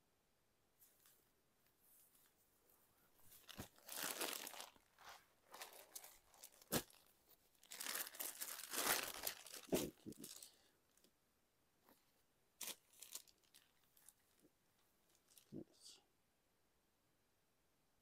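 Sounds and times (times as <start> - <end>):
fabric crinkling and rustling: 0.8 - 11.1, 11.8 - 15.6.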